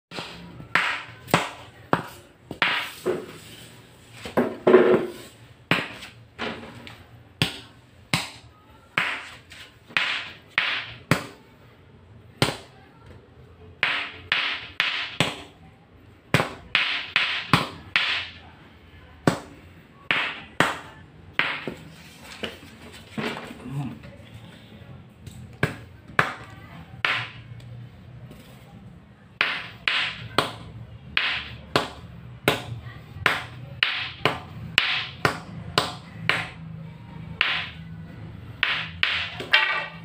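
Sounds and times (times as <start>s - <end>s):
stick knocking on tiled floor: 0.1s - 3.3s, 4.2s - 6.6s, 29.4s - 36.5s, 38.6s - 40.0s.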